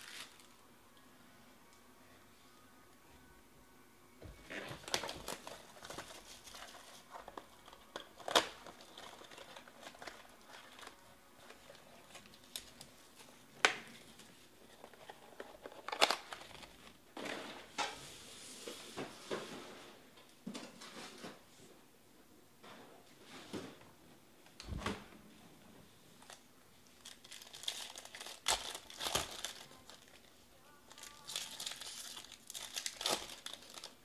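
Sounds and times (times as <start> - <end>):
plastic wrapping crinkling: 0.0 - 0.6, 4.4 - 17.0, 26.2 - 34.0.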